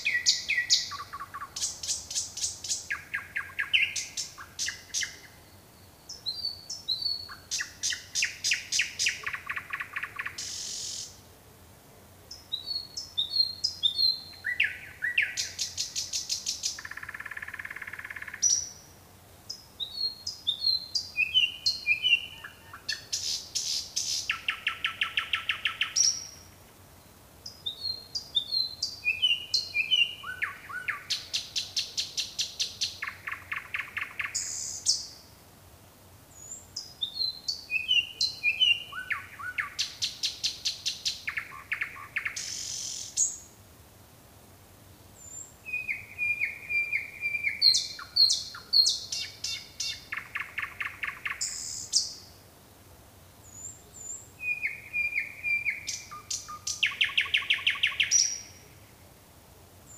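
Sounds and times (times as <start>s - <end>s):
nightingale singing: 0.0s - 11.2s, 12.3s - 35.3s, 36.3s - 43.5s, 45.2s - 52.4s, 53.4s - 58.9s.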